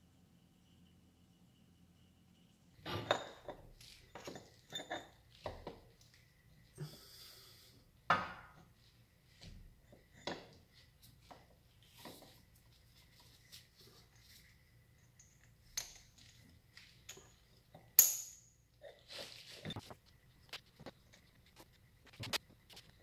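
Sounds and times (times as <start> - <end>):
light metallic clinks and taps: 15.0 - 18.6.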